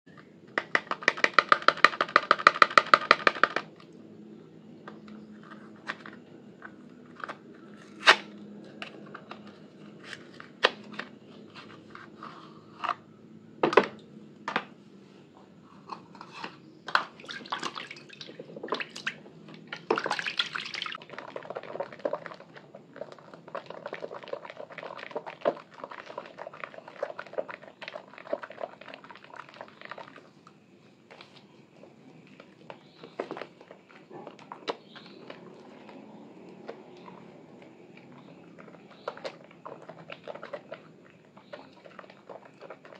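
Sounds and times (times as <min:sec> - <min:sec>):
sponge rubbing wet soap: 0:20.1 - 0:30.3, 0:32.3 - 0:42.9
squelching lather crackle: 0:32.3 - 0:42.9.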